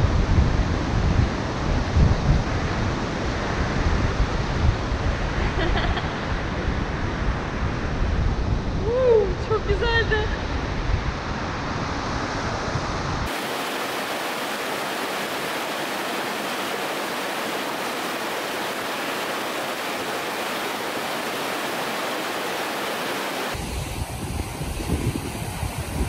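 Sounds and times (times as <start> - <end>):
wind buffeting microphone: 0.0 - 26.0
river rushing over boulders: 13.3 - 25.6.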